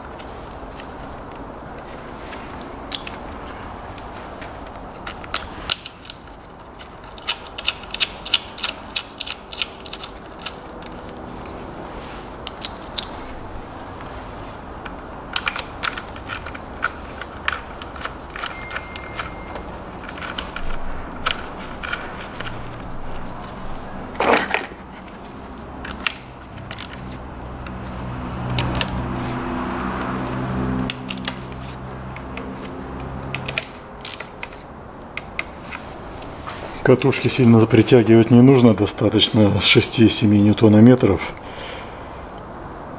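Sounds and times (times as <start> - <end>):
steady low hum: 0.0 - 39.5
metal hand tools clinking: 17.4 - 22.6, 24.2 - 24.8.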